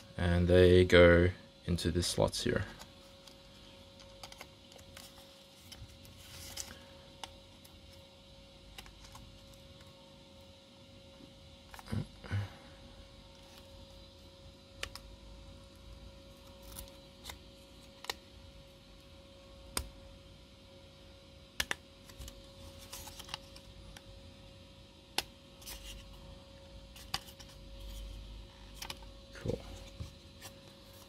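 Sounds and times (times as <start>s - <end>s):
faint steady hum: 0.0s - 31.0s
soft handling noise: 2.4s - 8.1s, 22.0s - 24.1s, 25.5s - 31.0s.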